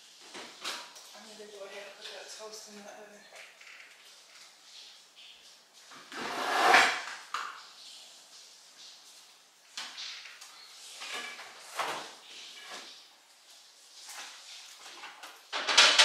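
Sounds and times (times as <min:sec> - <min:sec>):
drawer or cupboard shutting: 0:06.1 - 0:07.0
kitchen items rattling: 0:14.0 - 0:16.0.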